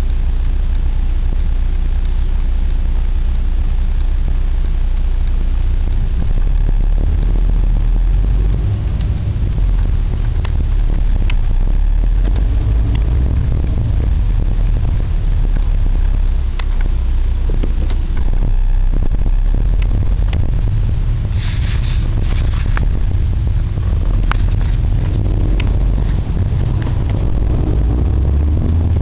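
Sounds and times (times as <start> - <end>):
engine and road rumble: 0.0 - 29.0
sharp clicks and knocks: 8.0 - 15.8, 16.4 - 28.0.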